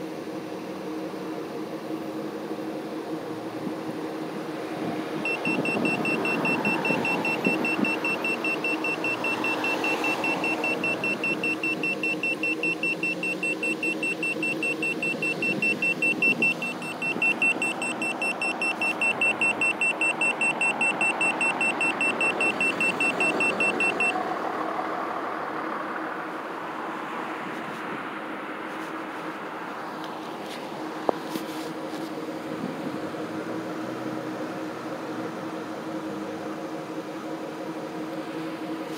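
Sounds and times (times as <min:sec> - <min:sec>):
car engine idling: 0:01.8 - 0:38.9
meter alarm beeping rapidly: 0:05.2 - 0:24.2.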